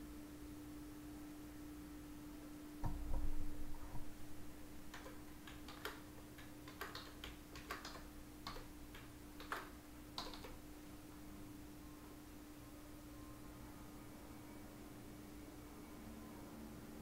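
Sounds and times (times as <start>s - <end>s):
faint steady hum: 0.0s - 17.0s
computer keyboard keys clicking: 4.9s - 10.6s.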